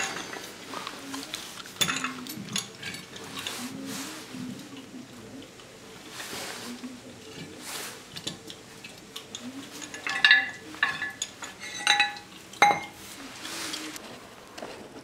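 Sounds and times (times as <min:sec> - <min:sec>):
steel pipe clanking in a vise: 0:09.8 - 0:13.0.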